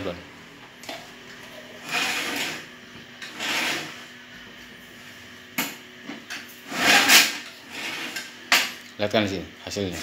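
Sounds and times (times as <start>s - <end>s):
squeegee scraping screen mesh: 1.8s - 2.7s, 3.3s - 4.0s, 6.6s - 8.3s.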